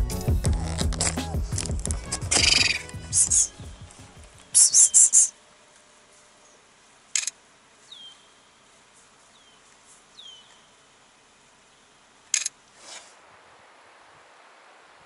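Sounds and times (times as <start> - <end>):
high buzzy bird notes: 0.0 - 5.4
down-slurred bird chirps: 2.3 - 5.4, 7.9 - 8.6, 10.2 - 10.8.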